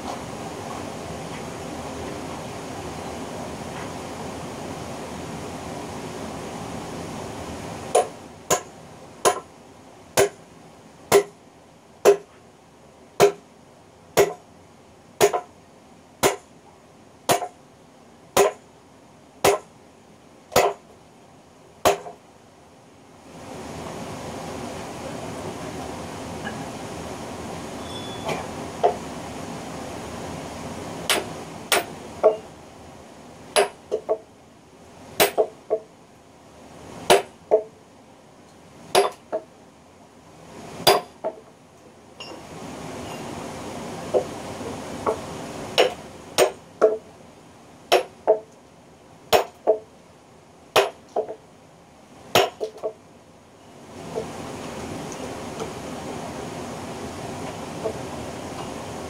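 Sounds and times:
sledgehammer striking steel wedge: 7.9s - 9.4s, 10.2s - 10.4s, 11.1s - 11.4s, 12.0s - 12.3s, 13.2s - 13.4s, 14.2s - 14.4s, 15.2s - 15.5s, 16.2s - 16.5s, 17.3s - 17.6s, 18.4s - 18.6s, 19.4s - 19.7s, 20.6s - 20.8s, 21.8s - 22.2s, 31.1s - 32.4s, 33.6s - 33.8s, 35.2s - 35.5s, 37.1s - 37.3s, 38.9s - 39.2s, 40.8s - 41.1s, 45.8s - 47.0s, 47.9s - 48.1s, 49.3s - 49.8s, 50.8s - 51.0s, 52.4s - 52.7s.

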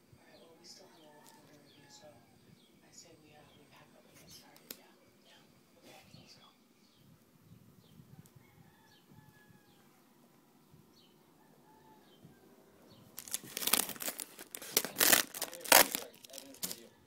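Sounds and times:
packaging rustling and tearing: 13.2s - 16.9s.

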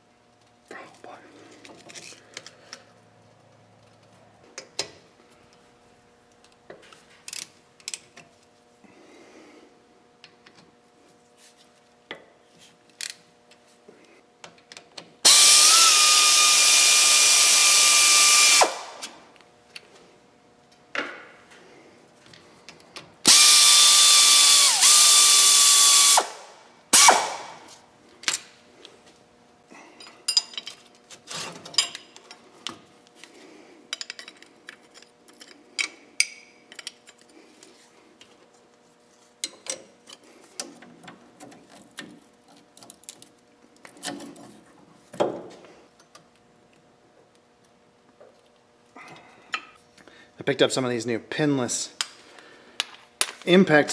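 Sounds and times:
cordless power tool whining: 15.2s - 19.2s, 23.2s - 27.7s.

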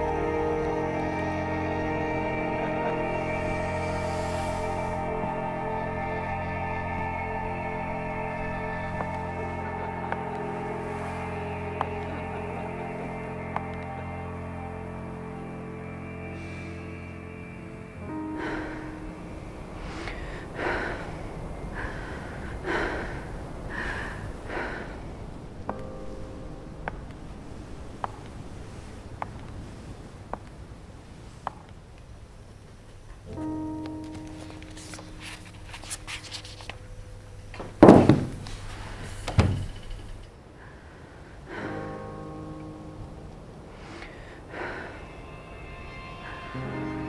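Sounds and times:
quiet background music: 0.0s - 40.6s, 41.4s - 47.0s
person breathing heavily: 18.0s - 25.5s, 40.5s - 42.2s, 43.7s - 45.2s
shoes thudding on wooden table: 37.8s - 38.4s.

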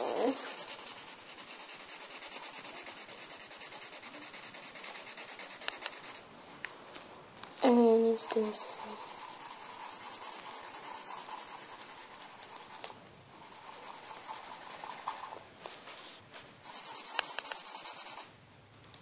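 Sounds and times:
felt-tip pen scribbling on paper: 0.0s - 6.2s, 8.3s - 12.8s, 13.4s - 15.4s, 16.6s - 18.3s.

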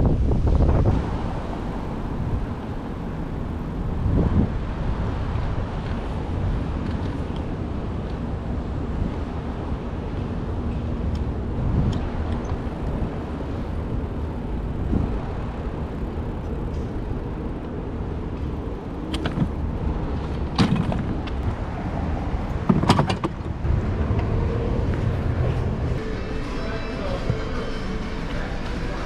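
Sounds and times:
wind buffeting microphone: 0.0s - 26.0s
bicycle rattling over bumps: 5.4s - 25.8s.

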